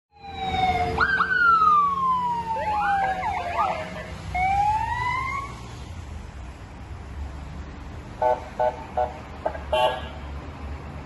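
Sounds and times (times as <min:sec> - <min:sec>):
police siren wailing and yelping: 0:00.2 - 0:05.6.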